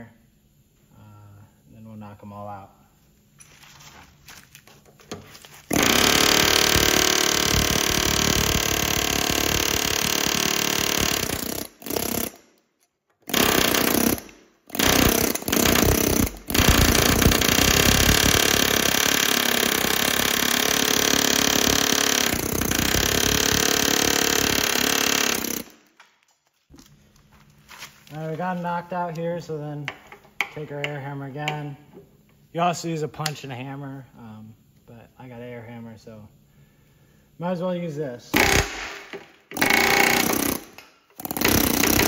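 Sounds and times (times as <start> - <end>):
pneumatic air hammer on steel: 13.3 - 25.7.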